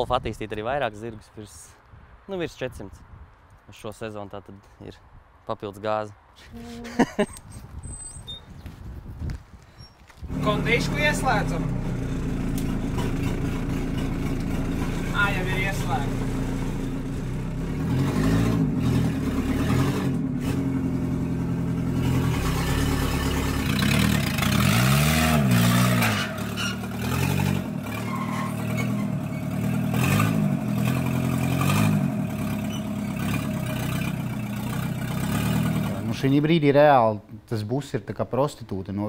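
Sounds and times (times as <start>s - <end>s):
diesel engine revving: 10.3s - 36.4s.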